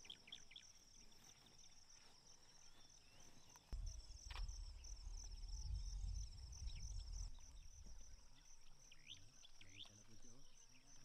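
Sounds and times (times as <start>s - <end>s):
insects chirping: 0.0s - 11.0s
low rumble: 3.8s - 8.3s.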